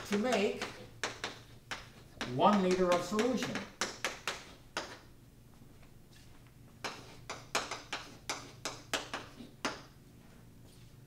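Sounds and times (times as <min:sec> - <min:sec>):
chalk tapping on a blackboard: 0:00.0 - 0:05.1, 0:06.8 - 0:09.9.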